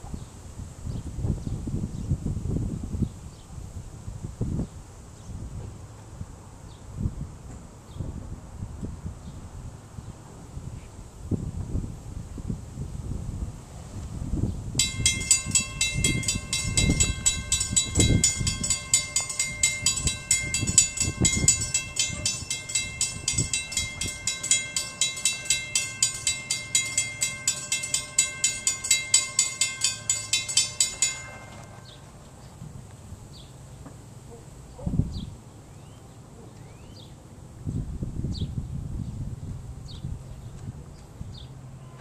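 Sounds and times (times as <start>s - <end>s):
railroad crossing bell ringing: 14.8s - 32.4s.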